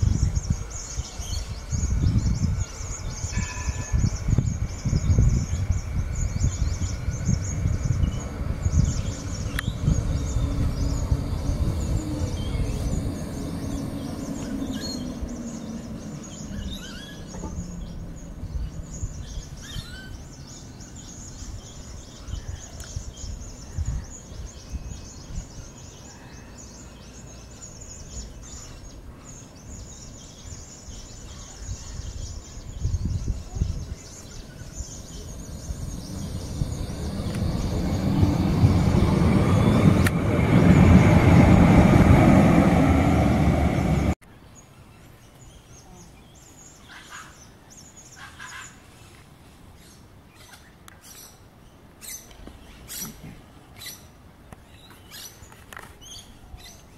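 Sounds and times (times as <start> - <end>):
tram motor whine: 0.0 - 19.2, 34.4 - 44.2
tram wheel noise: 0.0 - 19.3, 33.6 - 44.2
birds chirping: 0.0 - 56.9.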